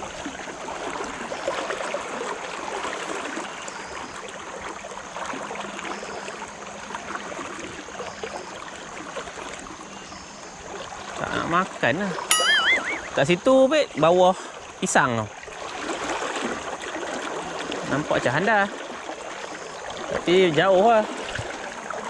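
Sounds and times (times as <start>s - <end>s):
river water flowing: 0.0s - 22.0s.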